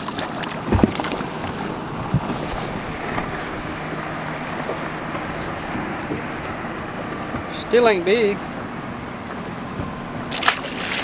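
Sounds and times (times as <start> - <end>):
water noise: 0.0 - 11.0
wind: 0.0 - 11.0
dull thump: 0.7 - 1.2
fish splashing at water surface: 10.3 - 11.0.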